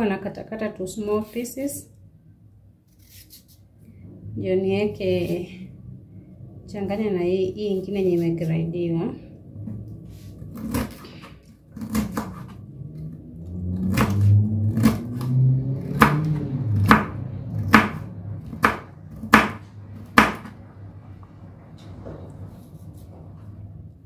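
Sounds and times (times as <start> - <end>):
low hum: 3.6 - 24.0
knife chopping on plastic board: 11.8 - 12.5, 15.9 - 20.6.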